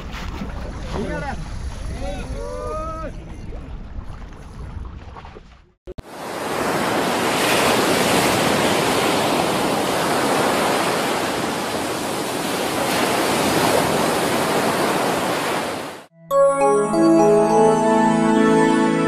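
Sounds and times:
ocean waves breaking: 6.0 - 16.1.

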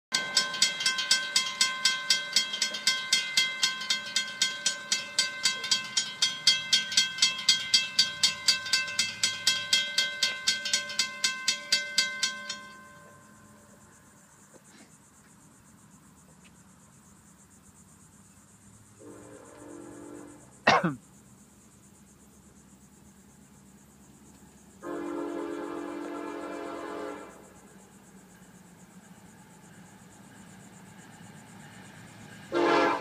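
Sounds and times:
railroad crossing bell ringing: 0.1 - 14.1, 29.6 - 33.0.

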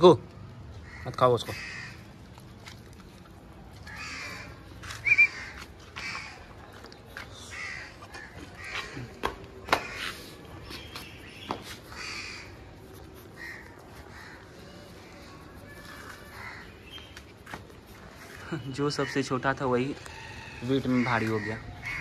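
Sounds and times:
crows cawing: 0.8 - 2.2, 3.8 - 6.7, 7.4 - 10.4, 11.9 - 12.8, 13.4 - 17.1, 19.0 - 22.0.

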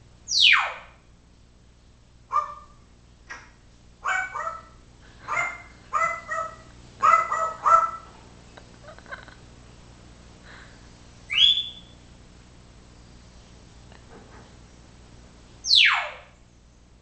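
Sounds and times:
parrot calling: 0.3 - 1.0, 2.3 - 8.1, 11.3 - 12.0, 15.6 - 16.4.

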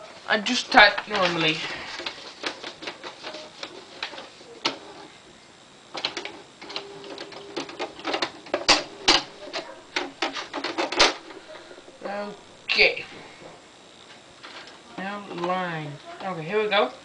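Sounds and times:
typewriter motor hum: 0.5 - 5.2, 5.8 - 12.5
typewriter clacking: 0.9 - 4.8, 6.0 - 11.2.

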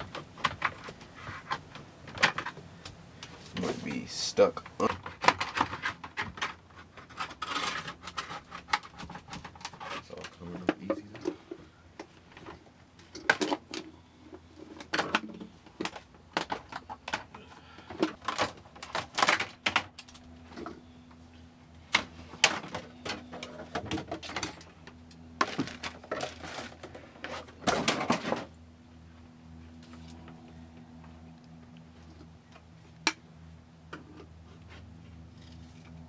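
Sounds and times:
faint steady hum: 0.0 - 36.0
countertop cracking and scraping: 4.8 - 10.8.

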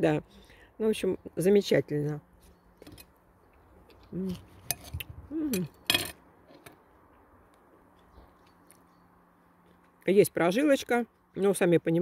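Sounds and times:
person humming: 4.1 - 4.4, 5.2 - 5.7.

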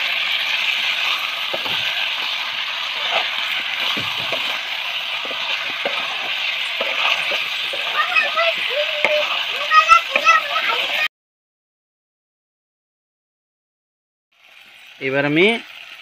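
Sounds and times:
chicken sizzling in hot oil: 0.0 - 11.1, 14.3 - 16.0
metal spoon scraping pan: 0.7 - 11.0.

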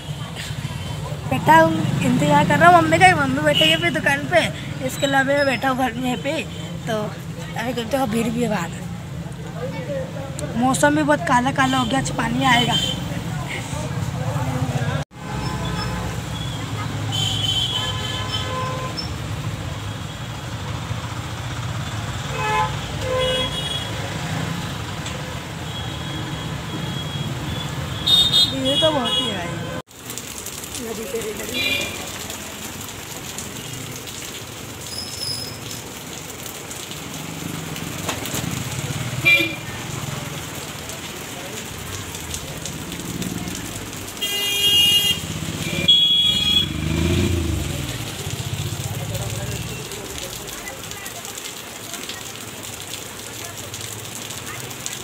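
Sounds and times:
heavy rain pouring: 0.0 - 55.0
motor vehicle passing: 36.9 - 44.1, 45.1 - 50.5
vehicle horn honking: 44.2 - 46.9
motor scooters passing: 45.1 - 50.0
car engine passing: 45.2 - 50.4.

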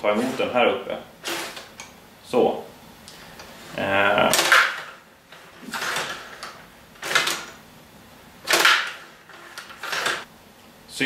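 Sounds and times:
table hockey rods moving: 0.0 - 2.0, 3.2 - 7.6, 8.4 - 10.3.

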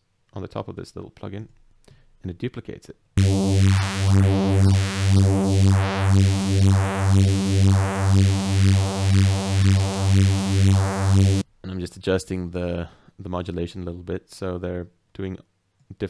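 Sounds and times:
pulsing buzzy synth bass: 3.2 - 11.4.

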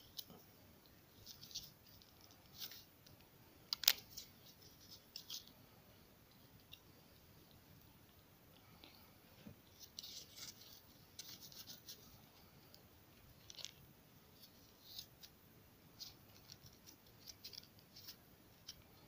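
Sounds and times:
kitten gnawing cardboard: 14.4 - 19.0.

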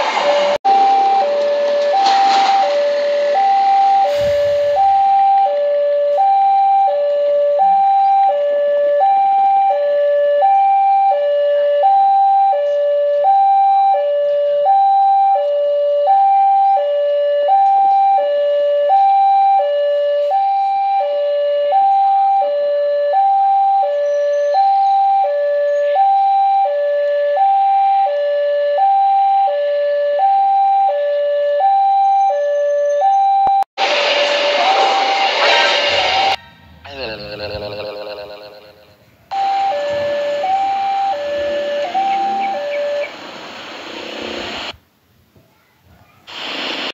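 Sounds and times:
sudden loud noise burst: 0.0 - 5.2, 33.8 - 38.4, 41.9 - 44.8
two-tone hi-lo siren: 0.0 - 44.8.

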